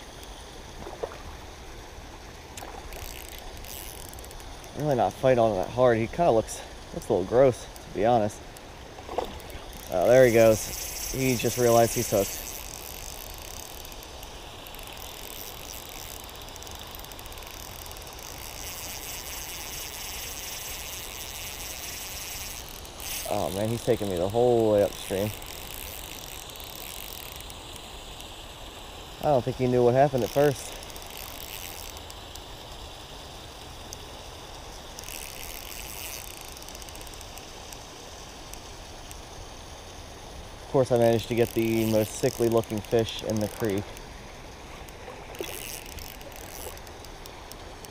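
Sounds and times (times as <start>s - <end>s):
creek water hissing: 0.0s - 47.9s
fishing reel drag clicking: 0.0s - 47.9s.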